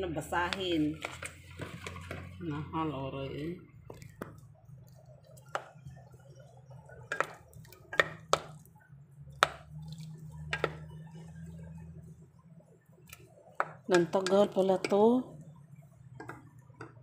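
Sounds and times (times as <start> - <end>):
low steady hum: 0.0 - 17.0
wooden spoon knocking metal pot: 5.4 - 6.2, 6.9 - 8.6, 9.3 - 9.7, 10.3 - 11.0, 13.6 - 15.2, 16.1 - 17.0.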